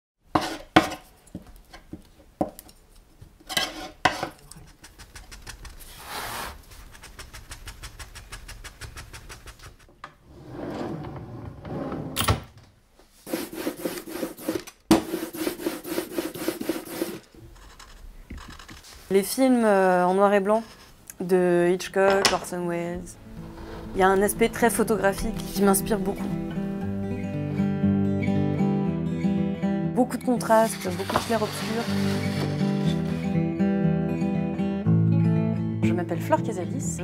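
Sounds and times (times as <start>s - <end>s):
hand tools scraping printing block: 13.3s - 17.9s, 30.5s - 33.3s.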